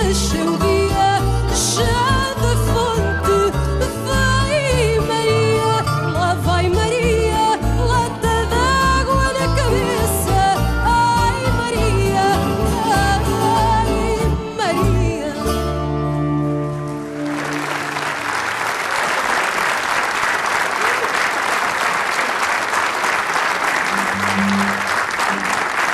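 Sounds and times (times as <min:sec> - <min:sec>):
woman singing: 0:00.0 - 0:16.0
guitars bass and cello playing: 0:00.0 - 0:18.2, 0:23.8 - 0:25.6
audience applause: 0:17.0 - 0:25.9.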